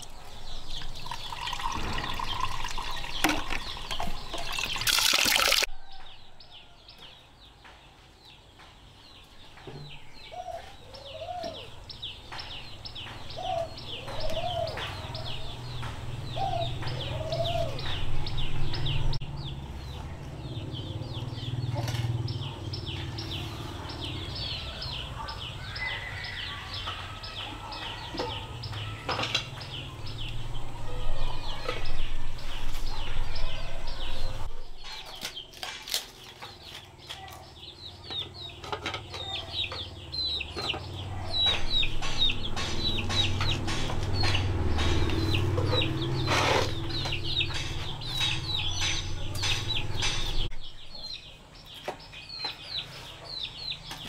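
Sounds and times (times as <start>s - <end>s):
chicks peeping: 29.6s - 54.0s
sharp knocks: 41.4s - 50.5s.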